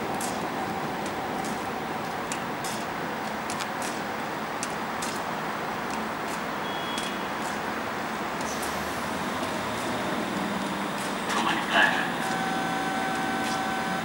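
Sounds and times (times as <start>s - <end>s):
train humming and hissing: 0.0s - 4.4s, 7.2s - 14.0s.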